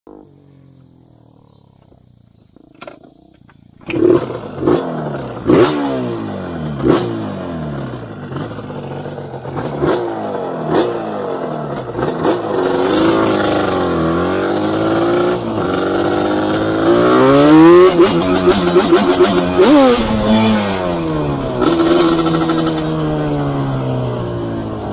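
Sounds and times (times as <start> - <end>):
quad engine revving: 3.8 - 24.9.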